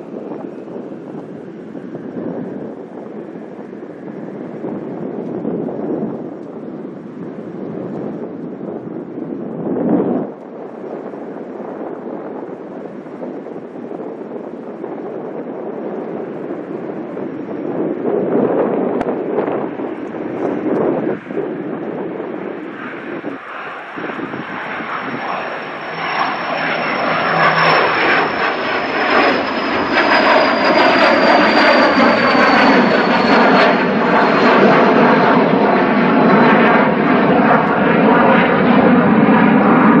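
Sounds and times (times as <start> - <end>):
jet engines at takeoff: 0.0 - 40.0
high whine falling in pitch: 23.7 - 34.6.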